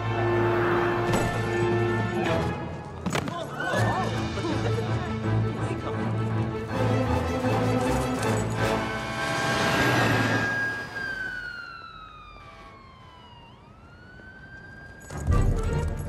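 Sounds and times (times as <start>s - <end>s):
film score music: 0.0s - 11.0s, 15.1s - 16.0s
fire engine siren wailing: 8.8s - 16.0s.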